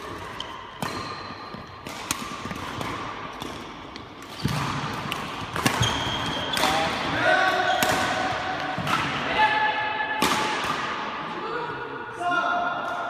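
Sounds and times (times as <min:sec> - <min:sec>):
shoes squeaking on floor: 0:00.0 - 0:01.8, 0:05.8 - 0:06.8
racket hitting shuttlecock: 0:00.0 - 0:09.2, 0:10.2 - 0:11.1.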